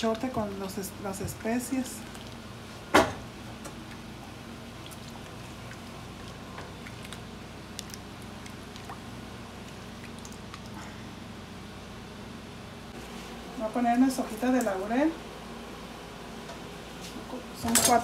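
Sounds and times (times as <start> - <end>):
marinade pouring and dripping: 1.8 - 2.6, 3.8 - 10.8
wet squishing of meat: 1.9 - 2.6, 4.6 - 11.0.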